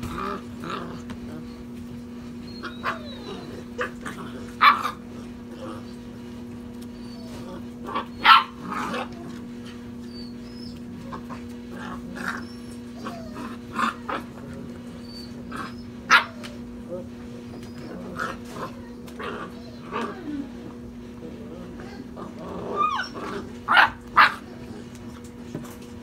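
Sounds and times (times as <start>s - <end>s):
puppies yipping and barking: 2.3s - 6.1s, 6.7s - 20.6s, 21.8s - 24.6s.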